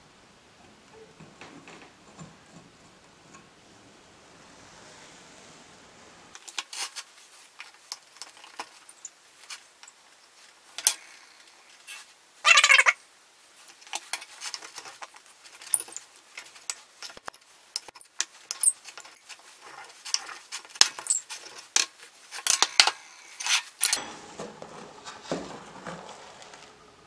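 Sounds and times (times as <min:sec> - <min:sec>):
crystals scraping on glass: 0:06.4 - 0:13.0, 0:13.6 - 0:24.1
crystal pieces in plastic tub: 0:13.9 - 0:24.0.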